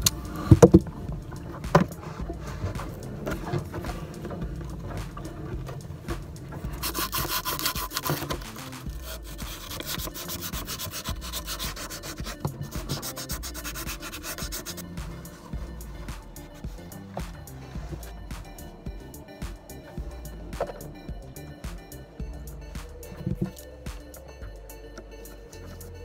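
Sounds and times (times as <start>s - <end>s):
abrasive strip scraping a pipe: 6.8s - 15.5s.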